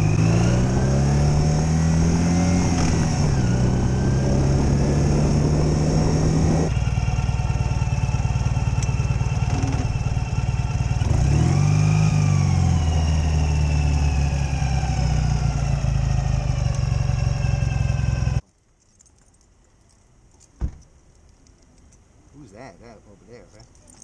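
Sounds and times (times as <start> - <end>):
motorcycle engine running: 0.0 - 18.4.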